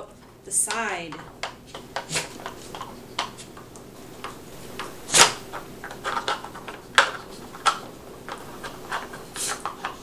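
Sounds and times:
plastic blocks clacking: 0:04.2 - 0:10.0.

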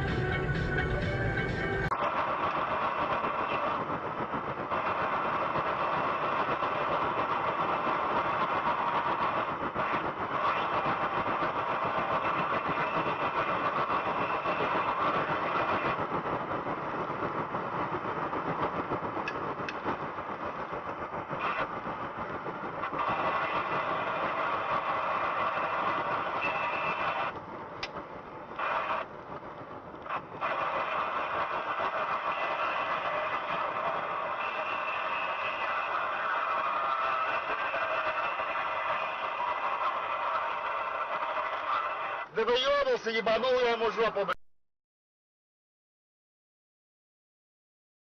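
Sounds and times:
vehicle engine: 0:00.0 - 0:42.3
road noise: 0:00.0 - 0:44.4.

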